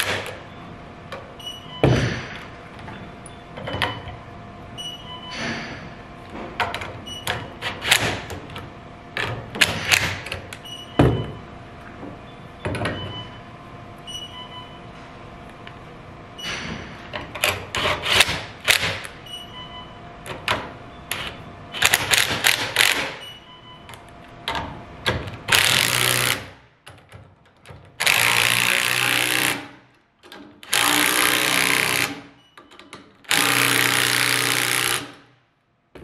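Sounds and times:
impact driver hammering: 28.0 - 29.8, 30.6 - 32.3, 33.3 - 35.3.

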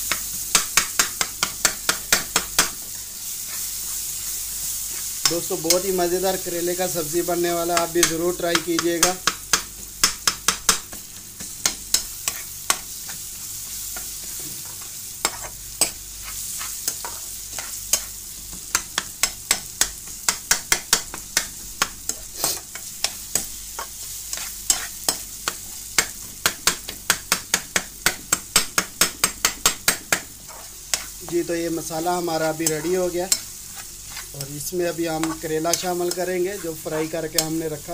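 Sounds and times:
masala sizzling: 0.0 - 37.9
metal spoon scraping a pan: 11.4 - 13.2, 14.2 - 18.2, 22.1 - 25.6, 30.1 - 31.4, 32.1 - 37.6.

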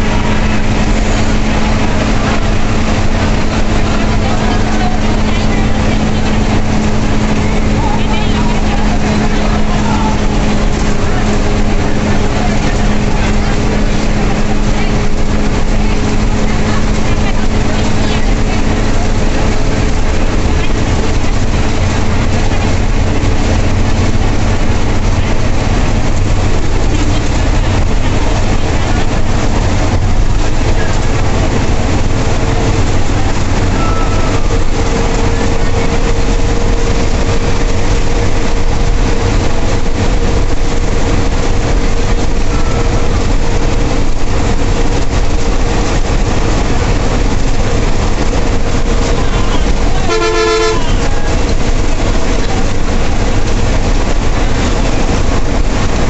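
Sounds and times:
bus engine running: 0.0 - 56.0
road and cabin noise: 0.0 - 56.0
horn blast: 49.2 - 51.4.

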